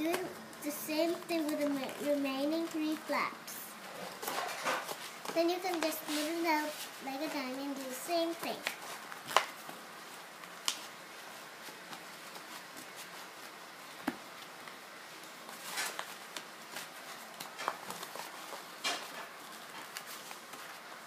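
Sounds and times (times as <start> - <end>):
paper rustling and crinkling: 0.0 - 3.1, 3.9 - 21.0.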